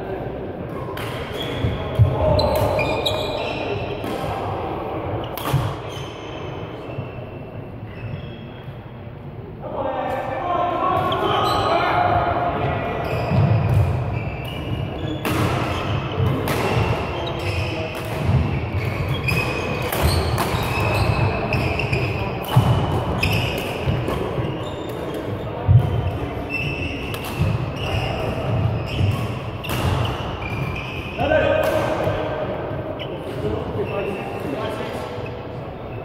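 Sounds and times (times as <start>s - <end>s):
rackets hitting shuttlecock: 0.7s - 4.4s, 5.2s - 6.0s, 13.4s - 32.3s
shoes squeaking: 1.3s - 4.0s, 5.4s - 8.6s, 13.0s - 31.6s.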